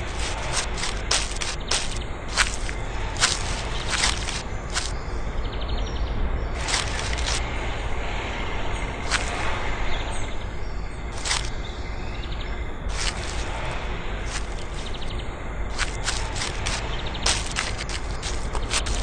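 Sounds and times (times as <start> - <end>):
hands rubbing sand: 0.0 - 4.9, 6.6 - 7.5, 9.0 - 9.5, 11.2 - 11.5, 12.9 - 15.1, 15.7 - 19.0.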